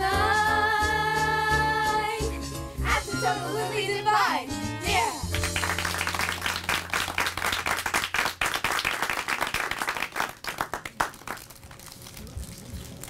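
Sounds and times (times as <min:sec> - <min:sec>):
audience applauding: 0:05.3 - 0:12.3.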